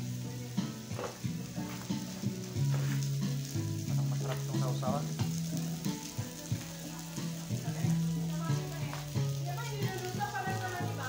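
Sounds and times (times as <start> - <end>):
food sizzling on grill plate: 0.0 - 11.0
music with low notes: 0.0 - 11.0.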